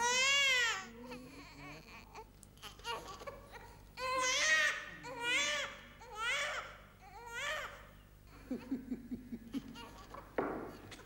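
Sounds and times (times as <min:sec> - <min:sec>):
newborn baby crying: 0:00.0 - 0:08.0.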